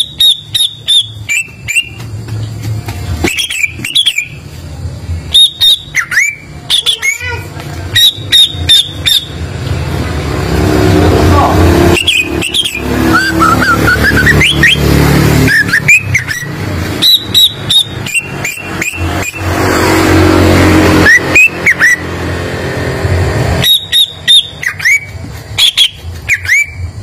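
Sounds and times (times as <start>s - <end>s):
bird singing whistled notes: 0.0s - 2.0s, 3.2s - 4.4s, 5.3s - 7.2s, 11.9s - 14.9s, 15.5s - 19.5s, 21.0s - 22.0s, 23.6s - 26.9s.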